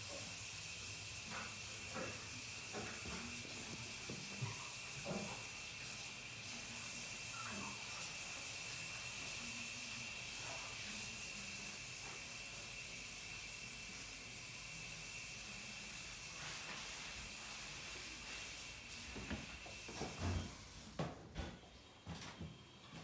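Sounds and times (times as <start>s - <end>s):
recording hiss: 0.0s - 23.0s.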